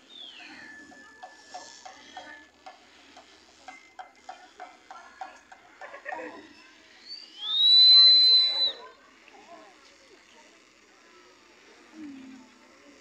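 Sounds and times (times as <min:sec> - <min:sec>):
small drum steady beat: 0:00.8 - 0:06.2
loud high whistle gliding up: 0:07.3 - 0:08.9
high reed flute tone: 0:07.4 - 0:08.9.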